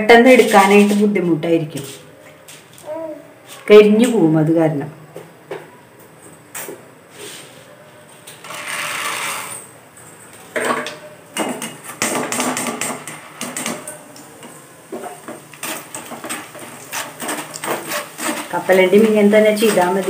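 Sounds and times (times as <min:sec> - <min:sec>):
hot oil sizzling: 0:10.5 - 0:20.0.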